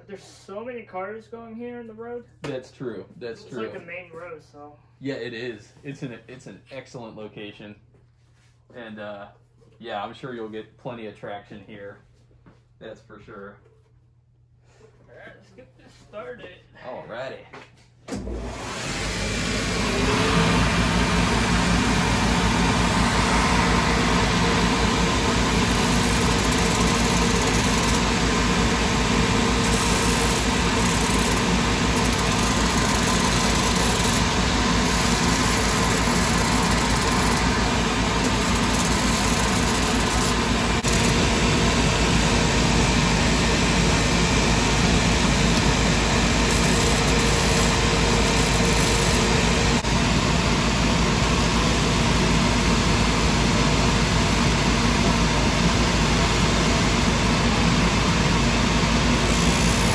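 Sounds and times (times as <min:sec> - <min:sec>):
shoe finishing machine humming: 0:18.1 - 0:59.9.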